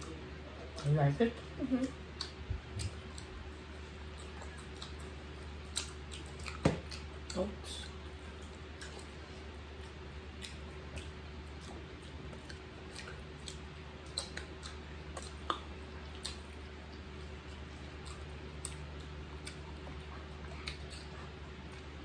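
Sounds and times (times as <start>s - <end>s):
low steady hum: 0.0s - 22.0s
people eating mango wetly: 0.0s - 22.0s.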